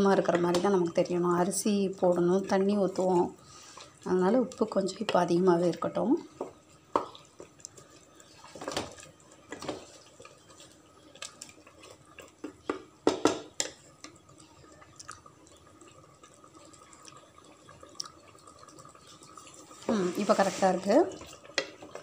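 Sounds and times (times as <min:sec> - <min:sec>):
spatula stirring thick gravy: 0:06.3 - 0:22.0.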